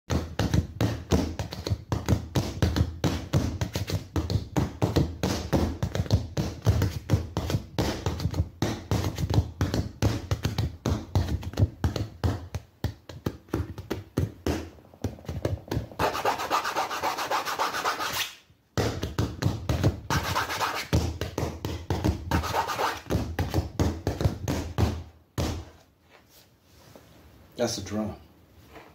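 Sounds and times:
hands tapping on canvas: 0:00.1 - 0:18.2, 0:18.8 - 0:25.8
hands rubbing canvas: 0:14.6 - 0:18.4, 0:20.1 - 0:21.0, 0:22.3 - 0:23.1.

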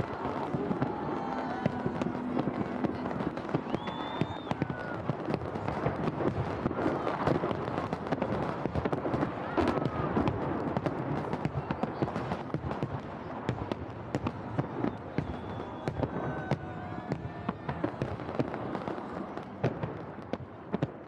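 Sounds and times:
fireworks bursting and crackling: 0:00.0 - 0:21.0.

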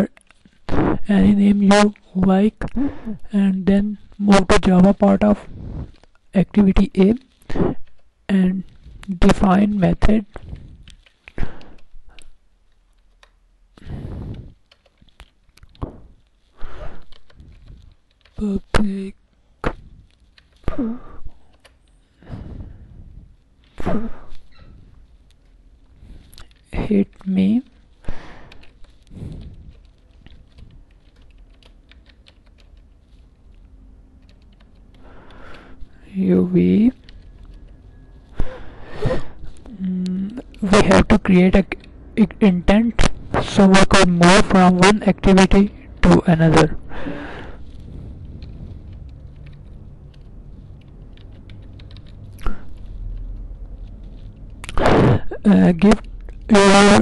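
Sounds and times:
low steady hum: 0:00.0 - 0:57.0
keyboard typing: 0:07.8 - 0:22.0, 0:26.3 - 0:38.4, 0:47.4 - 0:54.8, 0:55.4 - 0:57.0.

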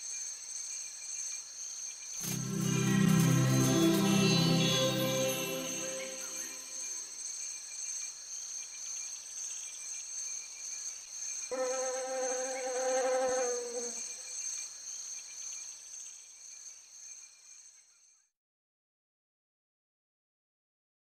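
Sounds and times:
insect wings buzzing: 0:11.5 - 0:14.2.

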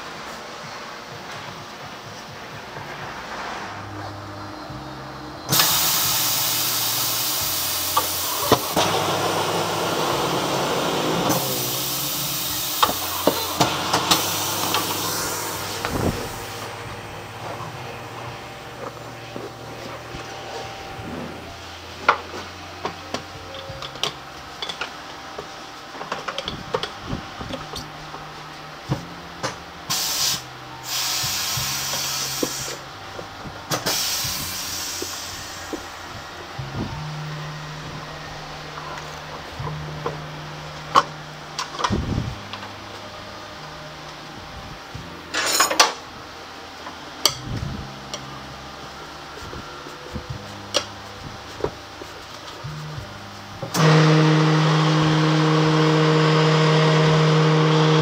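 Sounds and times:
low machine hum: 0:00.0 - 0:58.0
compressed air hissing: 0:05.2 - 0:22.0, 0:29.9 - 0:37.0
clicks and knocks of wheel handling: 0:22.0 - 0:27.9.

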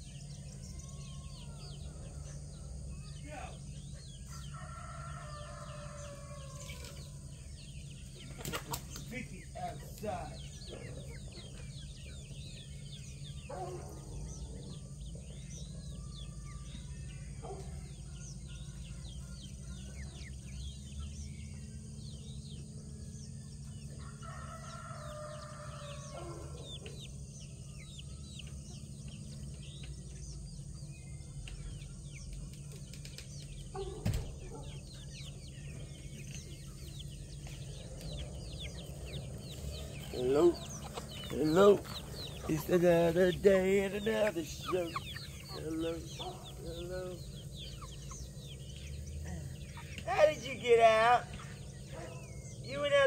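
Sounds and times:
chickens clucking: 0:00.0 - 0:53.0
small birds chirping: 0:00.0 - 0:53.0
rooster crowing: 0:00.5 - 0:02.9, 0:04.0 - 0:07.3, 0:23.7 - 0:27.1.

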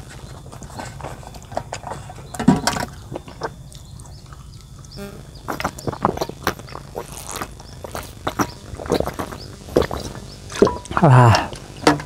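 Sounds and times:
person eating: 0:03.6 - 0:11.8.

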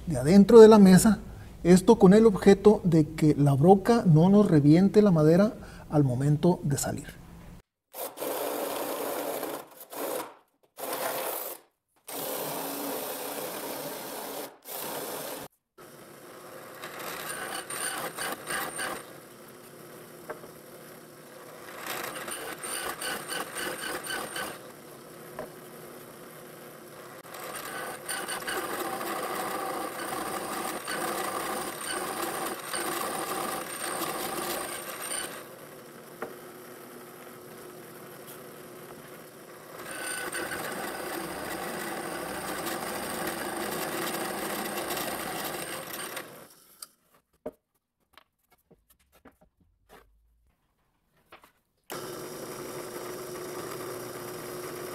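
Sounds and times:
drill press boring through wood: 0:16.4 - 0:19.2, 0:21.4 - 0:24.8, 0:27.2 - 0:36.4, 0:38.3 - 0:46.6, 0:51.9 - 0:54.9
drill press motor running: 0:27.2 - 0:46.6, 0:51.9 - 0:54.9.

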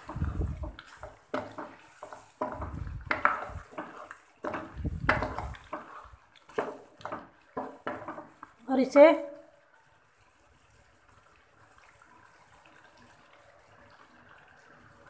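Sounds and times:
spatula knocking against pan: 0:00.0 - 0:08.4
wooden spatula scraping a wok: 0:00.0 - 0:08.6.

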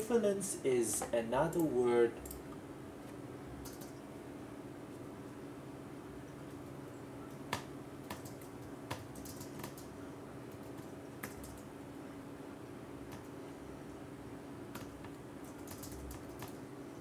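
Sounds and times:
computer keyboard typing: 0:03.6 - 0:03.9, 0:07.3 - 0:09.9, 0:10.5 - 0:11.7, 0:14.7 - 0:16.6.

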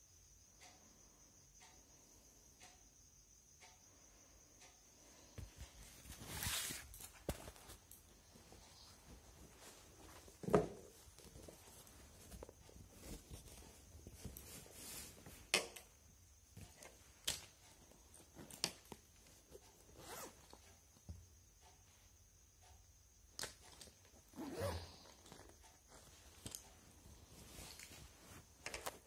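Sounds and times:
faint clicks and knocks: 0:06.9 - 0:24.3, 0:25.1 - 0:29.0.

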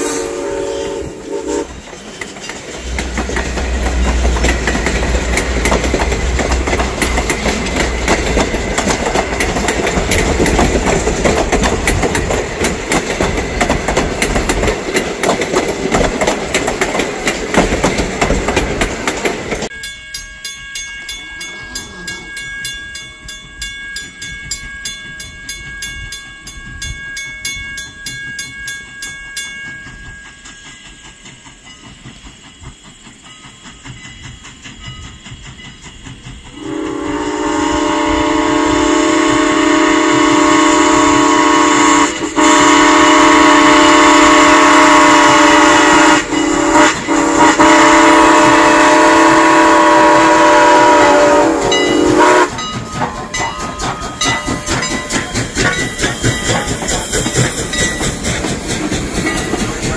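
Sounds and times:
steam whistle blowing: 0:00.0 - 0:01.8, 0:36.5 - 0:52.7
crossing signal bell ringing: 0:19.6 - 0:32.1, 0:50.2 - 0:58.4.

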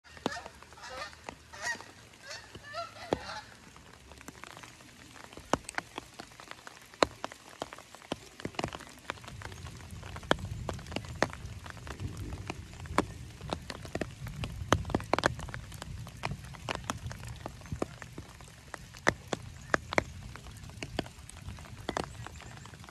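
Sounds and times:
raindrops dripping and ticking: 0:00.0 - 0:22.9
geese honking: 0:00.1 - 0:03.7.

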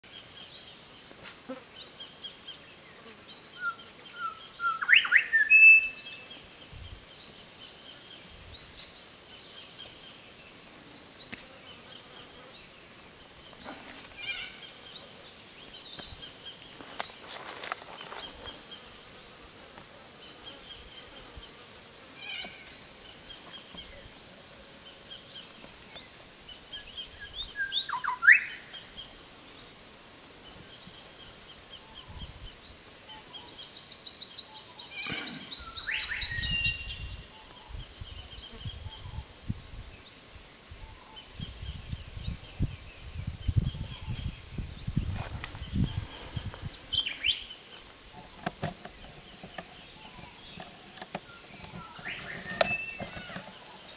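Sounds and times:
bird whistle: 0:03.7 - 0:06.0
birds chirping and calling: 0:11.3 - 0:19.4, 0:24.8 - 0:29.7, 0:30.5 - 0:39.3, 0:40.8 - 0:53.9.

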